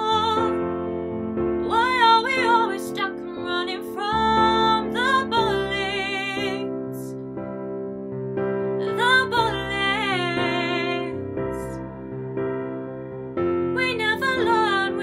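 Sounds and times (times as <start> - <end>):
woman singing pop ballad: 0.0 - 0.8, 1.6 - 7.2, 8.8 - 11.8, 13.7 - 15.0
piano backing track: 0.0 - 15.0.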